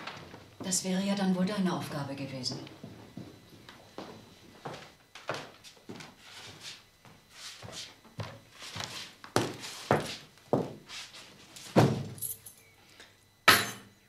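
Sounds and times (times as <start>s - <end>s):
footsteps on hard floor: 2.5s - 12.1s.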